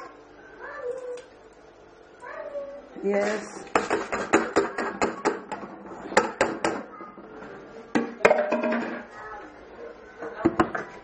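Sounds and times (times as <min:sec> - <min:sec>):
kitchenware clattering: 0:03.2 - 0:06.9, 0:07.9 - 0:09.1.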